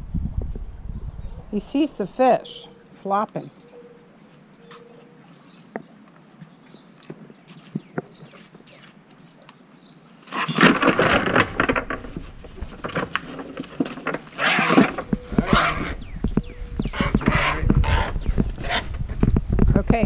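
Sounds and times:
microphone handling rumble: 0:00.0 - 0:01.6, 0:11.0 - 0:20.0
cast net rustling: 0:10.2 - 0:16.0
knocks and clatters: 0:10.3 - 0:17.8.

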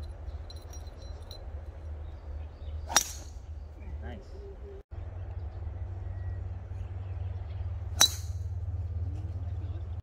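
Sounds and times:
golf club striking ball: 0:02.8 - 0:03.4, 0:08.0 - 0:08.5.

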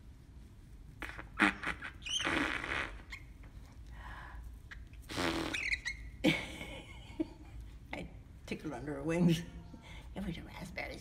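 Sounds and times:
person blowing raspberries: 0:01.0 - 0:03.3, 0:04.7 - 0:06.1.

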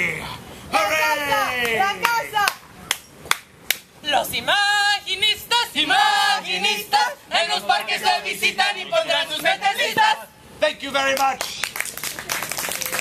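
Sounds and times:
voices singing together: 0:00.0 - 0:02.6, 0:04.0 - 0:10.6.

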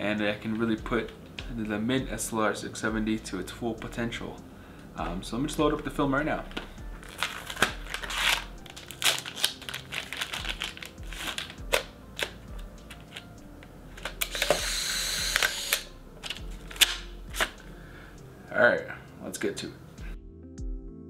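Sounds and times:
box and wrapper rustling: 0:06.5 - 0:14.6, 0:15.3 - 0:17.6
camera motor whirring: 0:14.2 - 0:15.9.

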